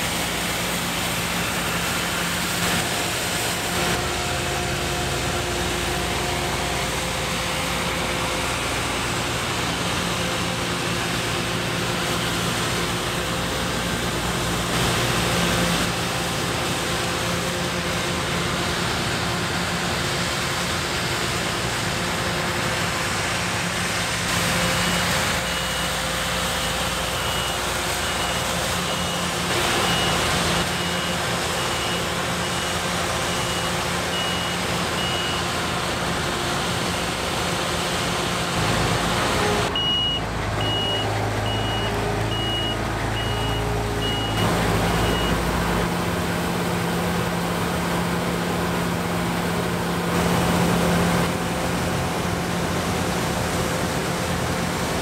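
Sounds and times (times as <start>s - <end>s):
combine harvester running: 0.0s - 55.0s
electronic warning beeper: 39.7s - 45.4s.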